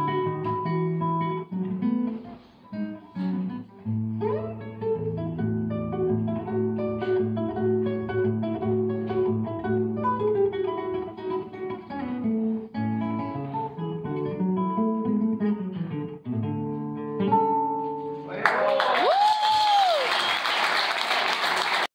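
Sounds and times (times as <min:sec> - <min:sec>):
acoustic guitar folk melody: 0:00.0 - 0:18.3.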